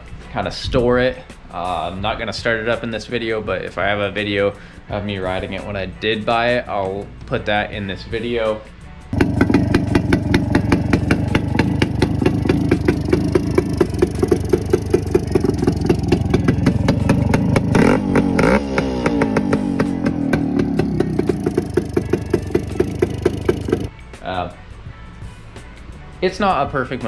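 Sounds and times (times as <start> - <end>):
two-stroke motorcycle engine running: 9.2 - 23.9.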